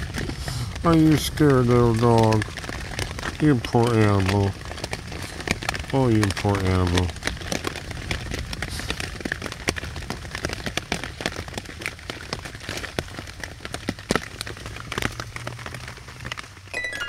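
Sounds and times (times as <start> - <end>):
rain pattering on a tarp: 0.0 - 17.0.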